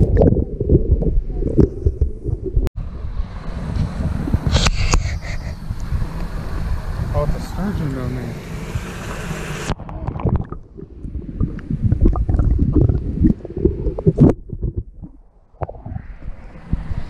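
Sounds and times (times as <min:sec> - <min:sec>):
underwater knocks and clicks: 0:00.0 - 0:02.7, 0:09.8 - 0:16.0
muffled underwater rumbling: 0:00.0 - 0:17.0.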